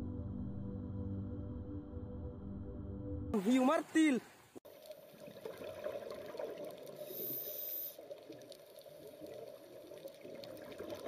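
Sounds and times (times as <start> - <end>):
muffled underwater water noise: 3.4 - 11.0.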